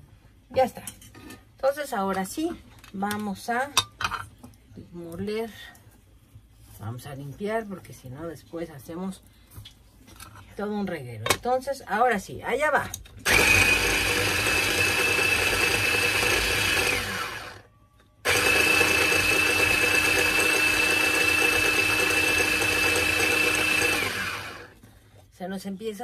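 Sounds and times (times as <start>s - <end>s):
electric grinder whining: 13.3s - 24.8s.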